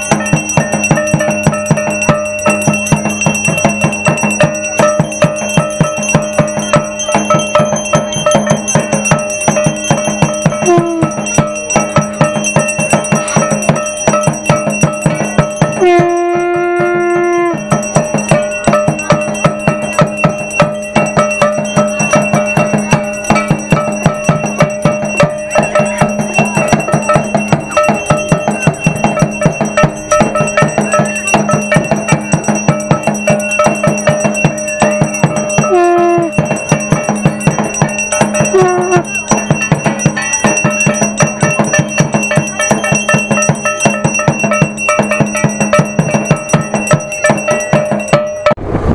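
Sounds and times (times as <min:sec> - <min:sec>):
bell ringing: 0:00.0 - 0:48.6
fast drum beating: 0:00.0 - 0:48.7
held horn-like note: 0:10.6 - 0:11.2, 0:15.8 - 0:17.8, 0:35.7 - 0:36.4, 0:38.5 - 0:39.1.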